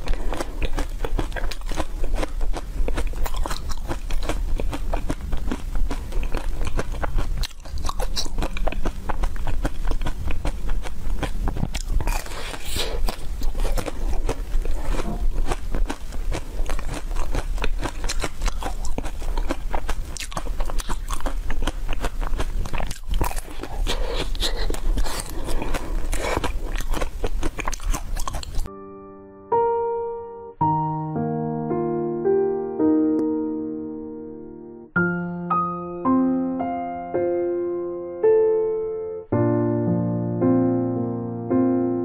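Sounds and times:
ice cream shell crunching: 0:00.0 - 0:28.7
electric piano notes: 0:28.7 - 0:42.0.

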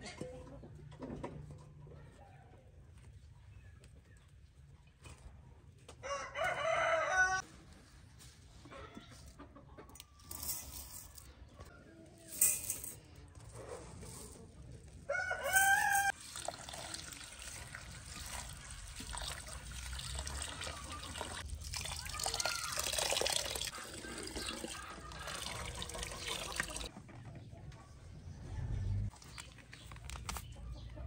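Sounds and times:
rooster crowing: 0:06.0 - 0:07.4, 0:15.1 - 0:16.1
water running from a tap into a bowl: 0:16.1 - 0:26.9.

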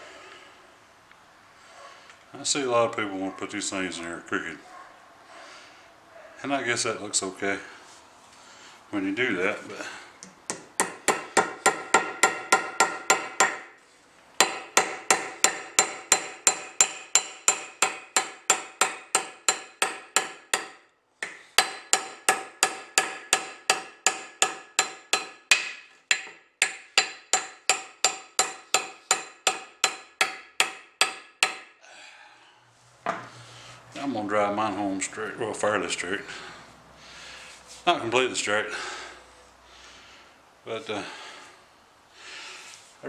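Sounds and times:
hammer tapping metal wedge: 0:10.2 - 0:13.7, 0:14.4 - 0:31.7.

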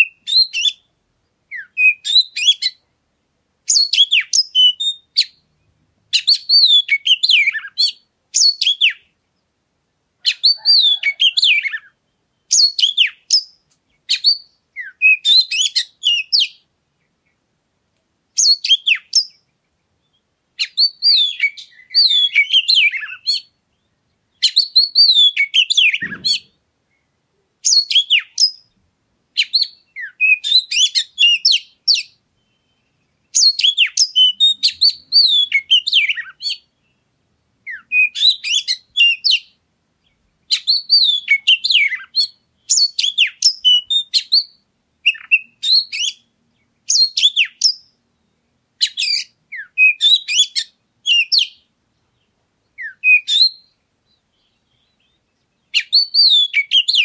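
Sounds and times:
songbird whistles and trills: 0:00.0 - 0:02.9, 0:03.7 - 0:09.5, 0:10.2 - 0:17.4, 0:18.4 - 0:57.0.

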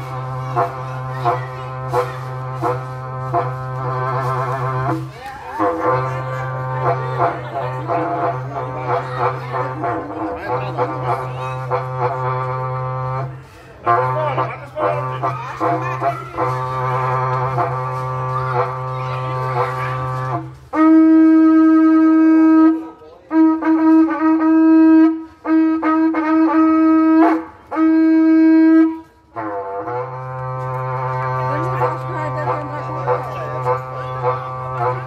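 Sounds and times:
horn trumpet blown: 0:00.0 - 0:35.0.

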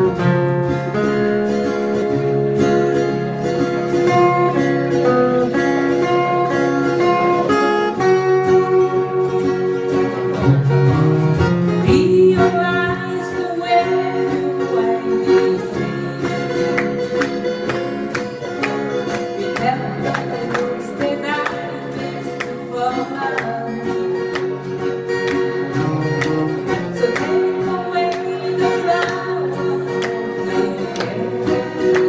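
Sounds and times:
acoustic guitars strummed: 0:00.0 - 0:32.0
person singing: 0:11.7 - 0:24.4, 0:25.2 - 0:32.0.

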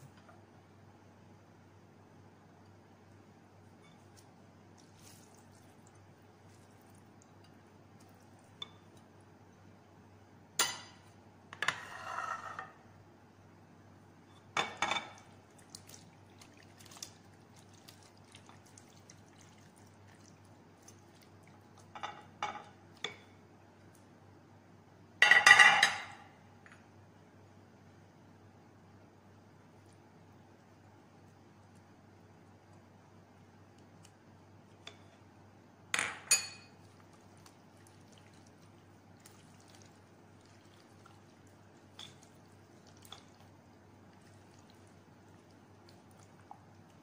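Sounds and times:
spatula scraping a dish: 0:11.7 - 0:12.6.

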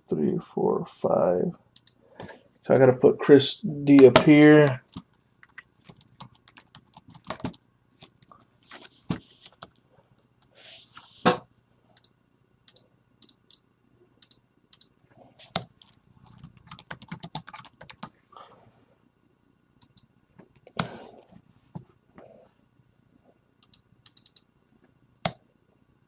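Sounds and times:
typing on computer keyboard: 0:04.6 - 0:08.3, 0:12.7 - 0:13.6, 0:14.2 - 0:14.9, 0:15.6 - 0:18.1, 0:23.6 - 0:24.5.

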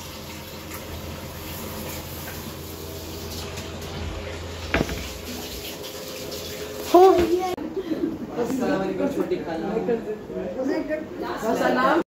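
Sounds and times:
oil sizzling in a wok: 0:00.0 - 0:07.5.

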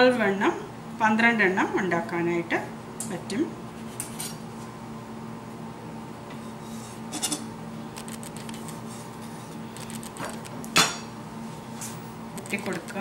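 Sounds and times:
steady low hum: 0:00.0 - 0:13.0
knife scraping: 0:06.4 - 0:07.5.

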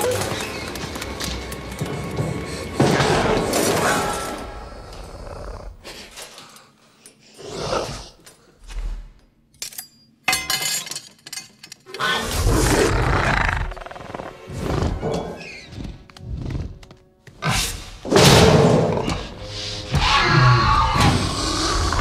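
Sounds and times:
film score music: 0:00.0 - 0:06.2, 0:11.9 - 0:22.0
creature snarls: 0:04.2 - 0:06.1, 0:07.4 - 0:08.2, 0:12.0 - 0:15.3, 0:20.7 - 0:22.0.

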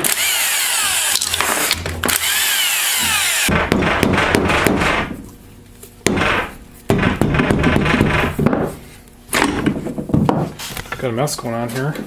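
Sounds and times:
cordless drill spinning: 0:00.0 - 0:03.5.

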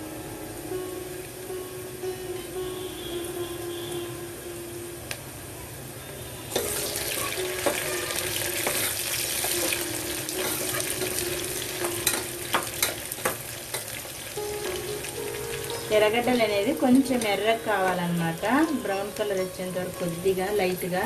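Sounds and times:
onions sizzling in hot oil: 0:00.0 - 0:05.2, 0:06.4 - 0:21.0.

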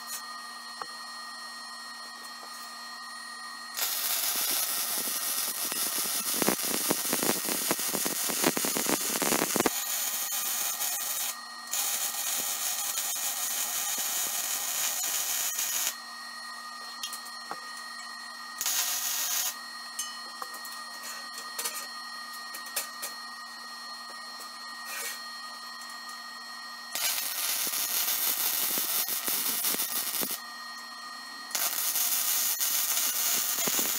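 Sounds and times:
welding arc hissing and crackling: 0:03.8 - 0:16.0, 0:18.6 - 0:19.6, 0:27.0 - 0:30.4, 0:31.5 - 0:33.9.

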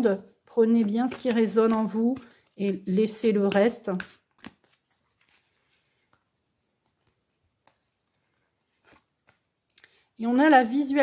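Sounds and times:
cards clicking and rustling: 0:00.7 - 0:02.5, 0:03.1 - 0:06.2.

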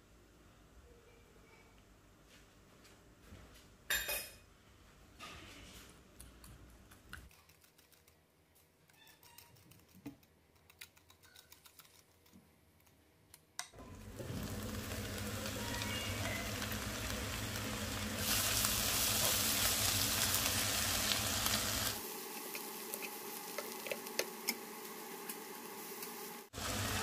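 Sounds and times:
onions frying in a pan: 0:13.8 - 0:27.0.

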